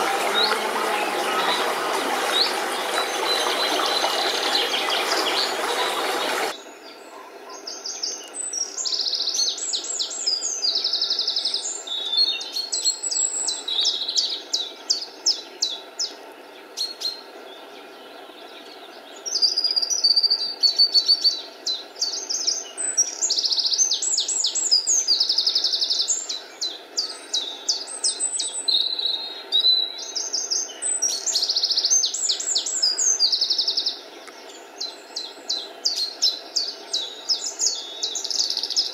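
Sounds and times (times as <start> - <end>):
brook water rushing: 0.0 - 6.6
songbirds singing: 0.0 - 38.9.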